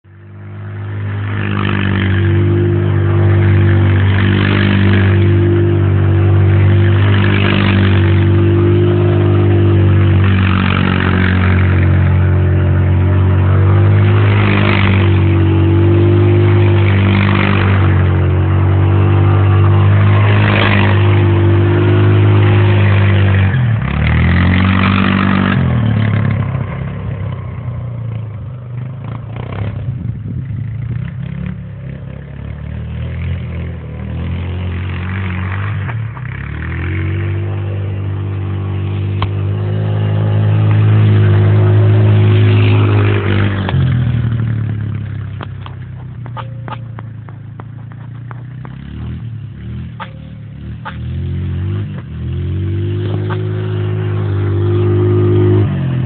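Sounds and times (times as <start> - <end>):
off-road vehicle engine running: 0.0 - 56.0.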